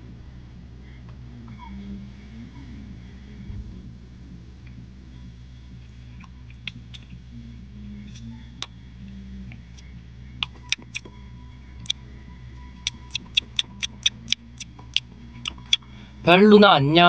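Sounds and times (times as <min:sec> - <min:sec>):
low steady hum: 0:00.0 - 0:17.0
plastic spoon eating clicks: 0:10.4 - 0:11.1.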